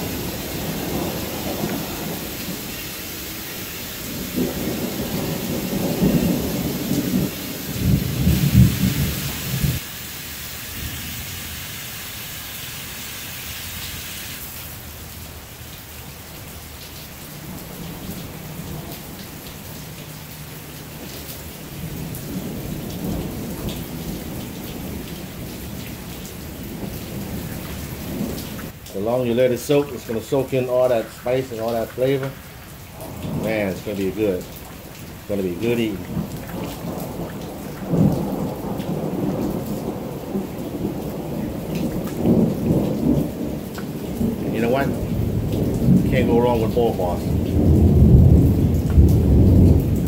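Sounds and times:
rolling thunder: 0.0 - 3.4, 4.0 - 9.9, 20.9 - 29.4, 32.2 - 50.0
steady rain: 0.0 - 50.0.

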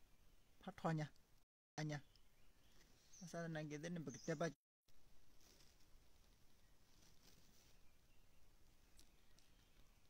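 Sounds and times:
faint sharp clicks: 8.9 - 9.9.

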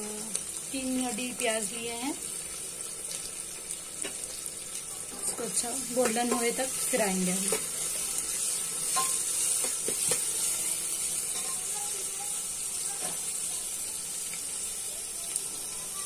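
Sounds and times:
onions sizzling in hot oil: 0.0 - 16.0.

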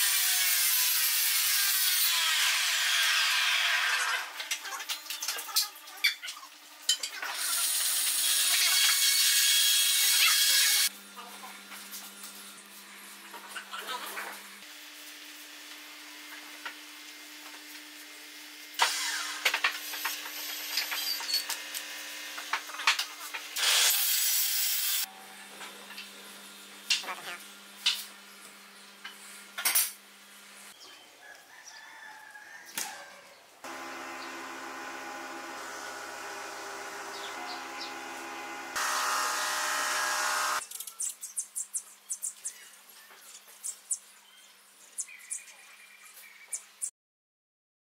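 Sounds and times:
small birds chirping: 37.1 - 38.0, 40.6 - 46.9.

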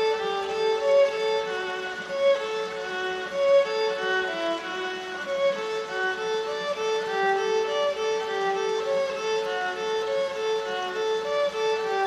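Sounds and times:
solo violin melody: 0.0 - 12.0.

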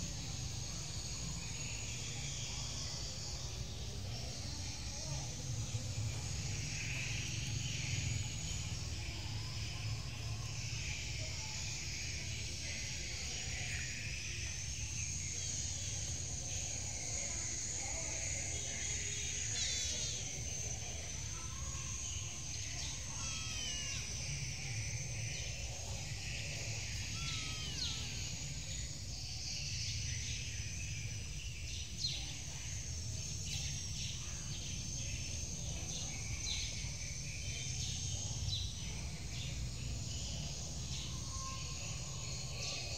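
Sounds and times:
high insect drone: 0.0 - 42.9
bird chirps: 21.4 - 32.6.

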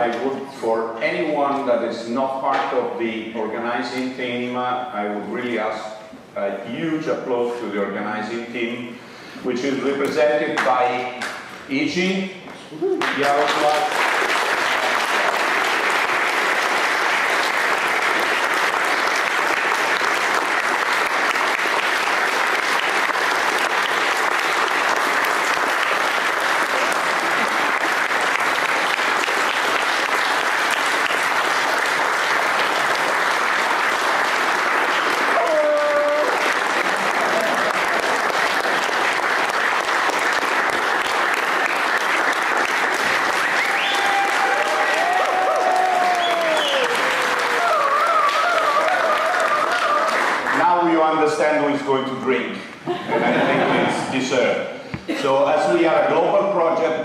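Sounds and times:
audience applause: 13.0 - 51.1
person calling out: 35.3 - 36.4.

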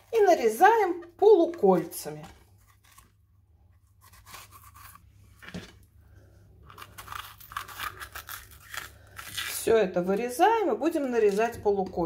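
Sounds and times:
knife cutting bell pepper: 3.8 - 5.6, 6.7 - 9.7.

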